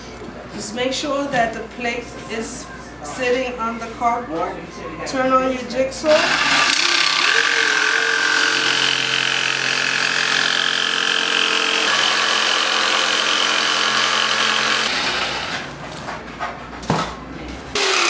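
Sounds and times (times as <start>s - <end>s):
jigsaw cutting cardboard: 6.1s - 15.7s, 17.8s - 18.0s.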